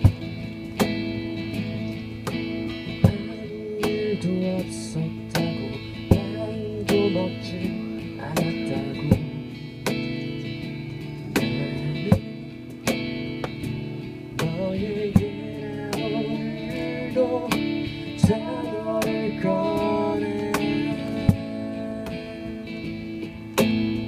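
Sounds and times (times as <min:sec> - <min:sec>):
strummed acoustic guitar: 0:00.0 - 0:24.0
woman singing: 0:14.4 - 0:22.8.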